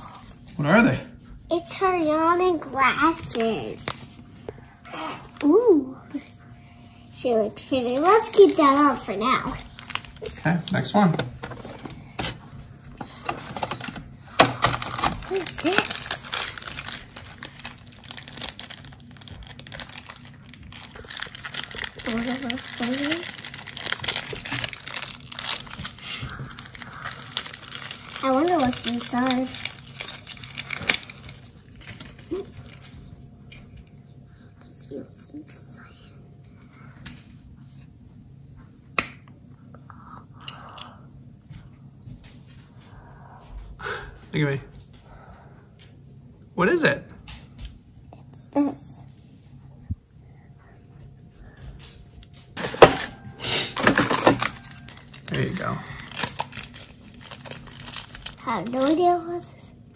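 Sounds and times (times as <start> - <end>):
foil packet crinkling: 2.8 - 4.2, 7.7 - 12.0, 13.3 - 32.9, 52.6 - 59.5.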